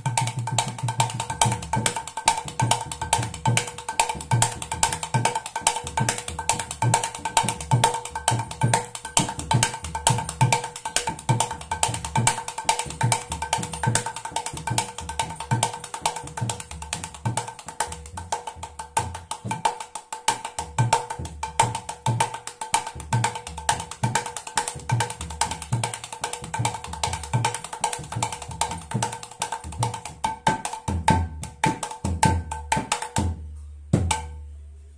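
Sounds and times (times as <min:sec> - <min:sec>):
hand drum fast rhythm: 0:00.0 - 0:34.3.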